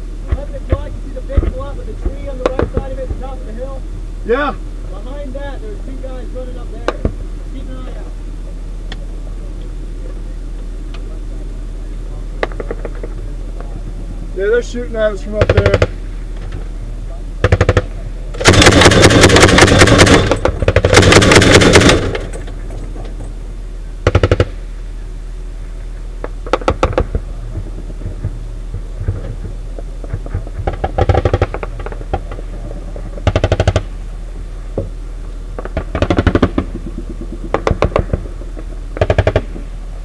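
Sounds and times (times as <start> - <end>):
distant automatic gunfire: 15.4 - 16.0, 17.4 - 22.4, 24.0 - 24.6, 30.2 - 32.4, 33.1 - 34.0, 35.6 - 38.4, 39.0 - 39.7
loud machine gun bursts: 15.4 - 16.0, 17.4 - 22.5, 24.0 - 24.6, 30.6 - 32.3, 33.1 - 34.0, 35.6 - 38.4, 39.0 - 39.7.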